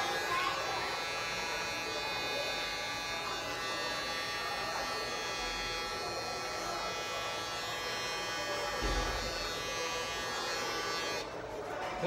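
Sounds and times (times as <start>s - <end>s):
hair clipper buzzing: 0.0s - 11.3s.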